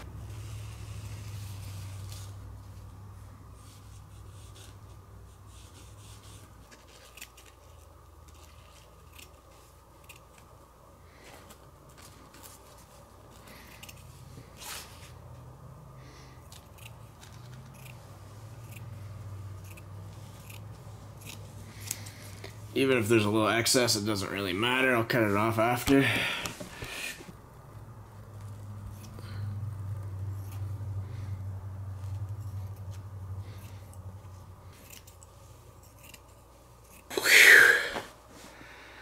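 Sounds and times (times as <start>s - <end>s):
scissors snipping fabric: 6.6s - 10.5s, 16.4s - 22.5s, 28.4s - 29.2s, 30.3s - 30.8s, 31.9s - 37.1s.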